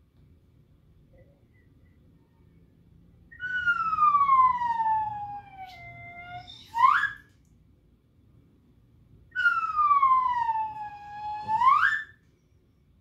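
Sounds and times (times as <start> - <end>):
slide whistle gliding: 5.7 - 7.3, 9.4 - 12.2.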